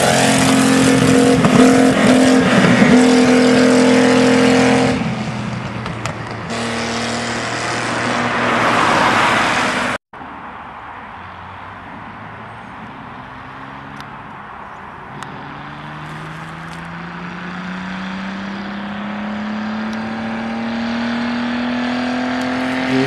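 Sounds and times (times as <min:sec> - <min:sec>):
tractor engine accelerating: 0:00.0 - 0:10.0.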